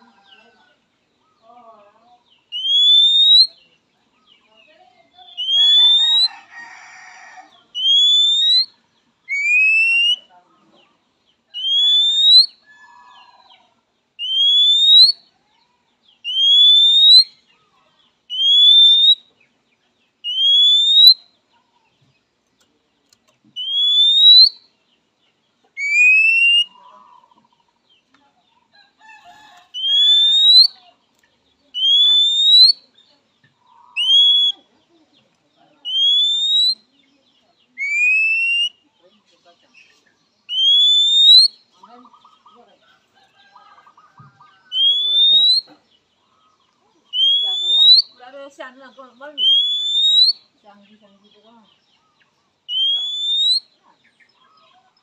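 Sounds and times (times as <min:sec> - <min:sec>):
bird whistling upward notes: 0:02.5 - 0:03.6, 0:07.8 - 0:10.2, 0:11.6 - 0:12.6, 0:14.2 - 0:15.2, 0:16.2 - 0:17.4, 0:18.3 - 0:19.3, 0:20.2 - 0:21.2, 0:23.6 - 0:24.6, 0:25.8 - 0:26.7, 0:29.8 - 0:30.8, 0:31.8 - 0:32.8, 0:35.9 - 0:36.8, 0:37.8 - 0:38.8, 0:40.5 - 0:41.6, 0:44.7 - 0:45.7, 0:47.1 - 0:48.2, 0:49.4 - 0:50.5, 0:52.7 - 0:53.8.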